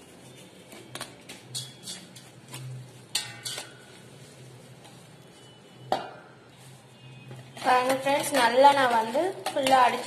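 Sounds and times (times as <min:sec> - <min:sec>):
wire whisk clinking in metal bowl: 0:03.1 - 0:03.8.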